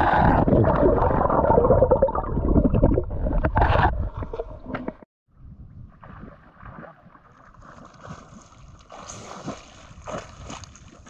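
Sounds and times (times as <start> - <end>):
small waves gurgling and slapping: 6.0 - 11.0.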